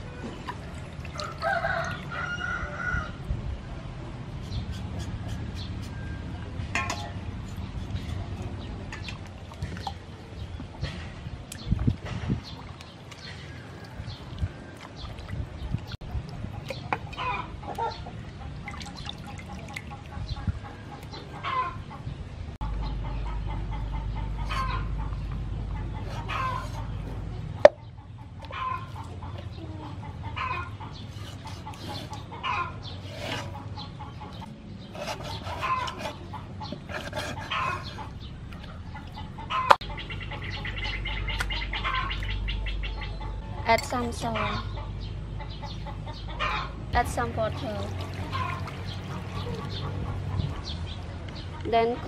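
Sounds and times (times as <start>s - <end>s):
chickens clucking: 16.1s - 18.7s, 19.5s - 52.0s.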